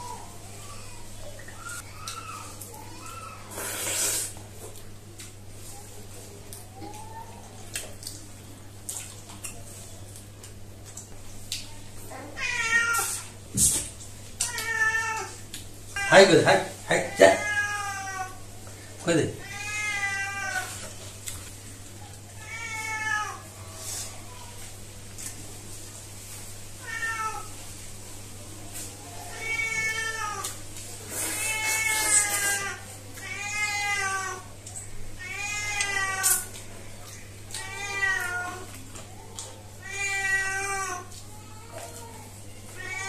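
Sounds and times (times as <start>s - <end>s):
cat meowing: 12.2s - 13.2s, 17.0s - 18.4s, 22.4s - 23.4s, 37.6s - 38.7s.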